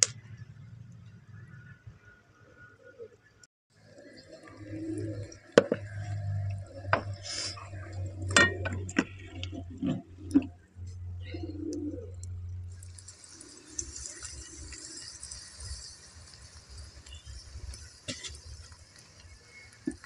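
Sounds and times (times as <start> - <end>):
metal pots and spoon clinking: 7.8 - 10.5, 17.0 - 18.8
pigeon cooing: 11.2 - 12.3.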